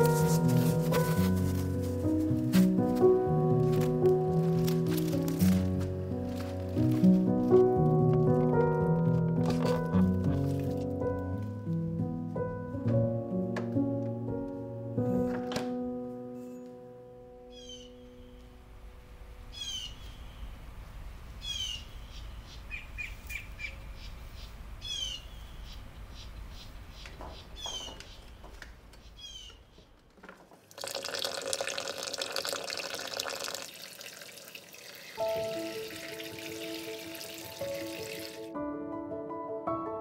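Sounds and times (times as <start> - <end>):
soft music with held notes: 0.0 - 18.9, 35.2 - 40.0
small birds chirping: 17.5 - 18.4, 19.5 - 20.6, 21.3 - 30.0
water pouring onto strawberries: 30.7 - 38.5.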